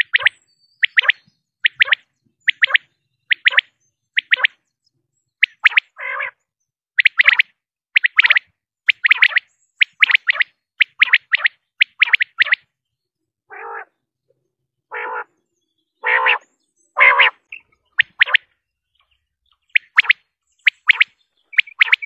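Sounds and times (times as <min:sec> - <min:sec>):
quail hoarse croaking notes: 0:00.0 - 0:04.6, 0:05.4 - 0:06.4, 0:07.0 - 0:12.7, 0:13.5 - 0:14.0, 0:14.9 - 0:15.4, 0:16.0 - 0:22.0
quail whistled notes: 0:00.0 - 0:04.6, 0:05.4 - 0:06.0, 0:07.0 - 0:12.7, 0:17.0 - 0:18.6, 0:19.6 - 0:22.0.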